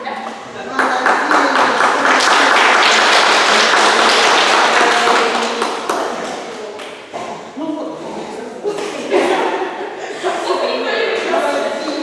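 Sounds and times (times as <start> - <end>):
audience applauding: 0.7 - 6.8.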